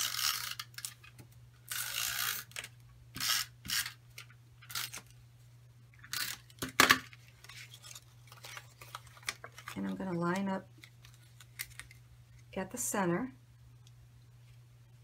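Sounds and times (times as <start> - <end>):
paper rustling: 7.2 - 12.0.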